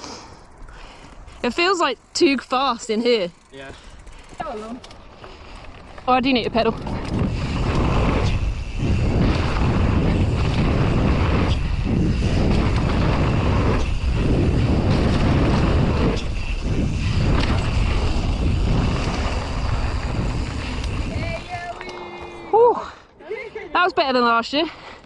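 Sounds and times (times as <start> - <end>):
bike tyres rolling on dirt: 0.0 - 23.2
wind rushing: 6.0 - 23.1.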